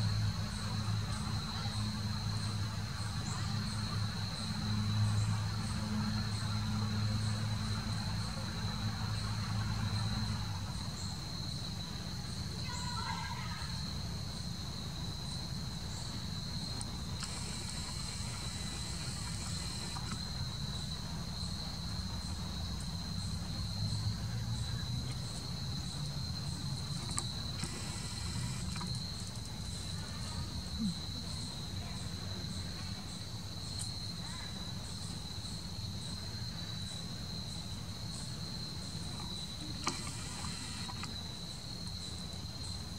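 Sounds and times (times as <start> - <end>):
low steady hum: 0.0 - 34.2, 34.8 - 42.9
pulsing insect call: 0.0 - 42.9
insect high-pitched trill: 12.6 - 24.0, 25.2 - 32.1, 33.6 - 42.9.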